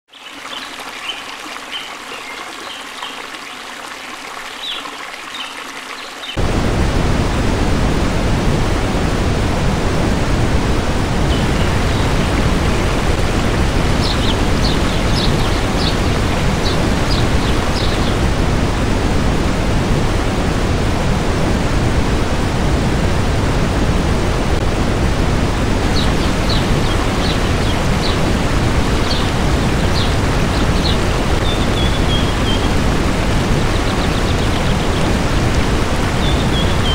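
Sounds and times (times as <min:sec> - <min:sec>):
water spilling over weir: 0:00.1 - 0:06.4, 0:11.4 - 0:19.4
waterfall rushing: 0:00.2 - 0:36.9.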